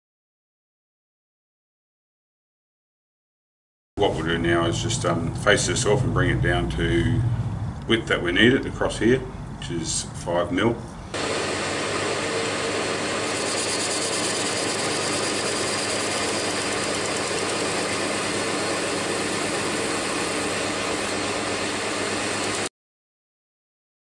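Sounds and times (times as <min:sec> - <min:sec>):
metal lathe cutting: 0:11.2 - 0:22.7.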